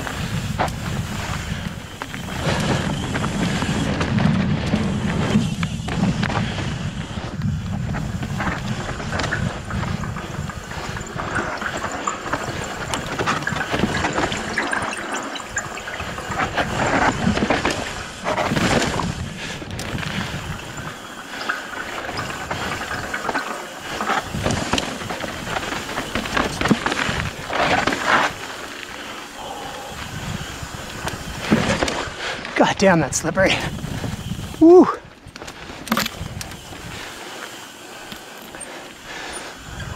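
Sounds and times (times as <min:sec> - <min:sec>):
wind rushing over microphone: 0:00.0 - 0:21.1, 0:29.3 - 0:37.2
bike knocking and rattling: 0:00.0 - 0:39.9
bike tyres rolling over rock: 0:00.0 - 0:39.9.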